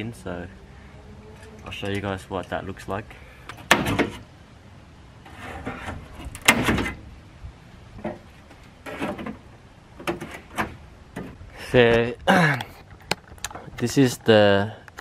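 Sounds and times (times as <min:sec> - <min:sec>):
metal scraping and bending: 0:00.0 - 0:04.3, 0:05.2 - 0:07.1.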